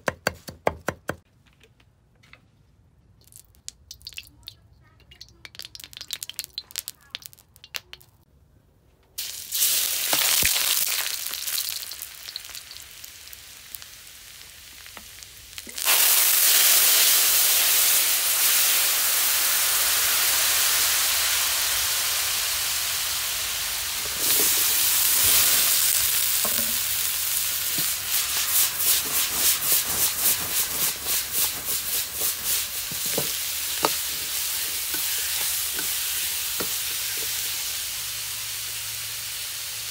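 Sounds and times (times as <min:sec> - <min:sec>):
vegetables sizzling in hot oil: 0:09.2 - 0:39.9.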